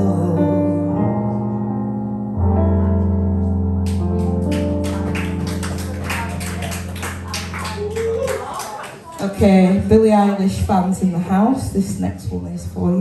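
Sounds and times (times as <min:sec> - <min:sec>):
held keyboard chord: 0:00.0 - 0:08.0
audience clapping: 0:03.8 - 0:09.8.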